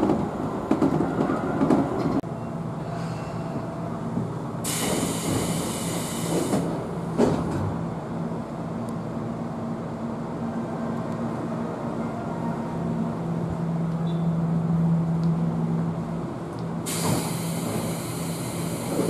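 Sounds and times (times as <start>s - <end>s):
train car hum: 0.0s - 19.0s
hiss: 4.6s - 6.8s, 16.9s - 19.0s.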